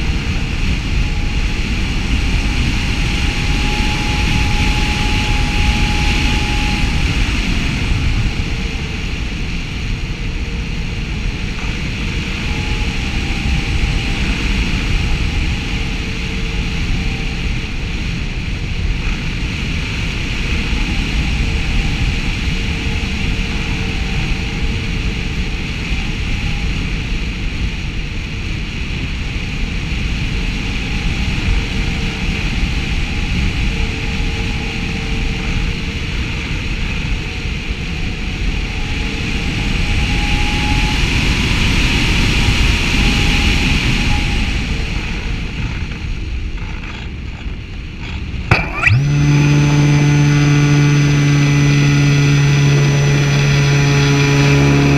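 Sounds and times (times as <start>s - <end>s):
propeller motor humming: 0.0s - 54.9s.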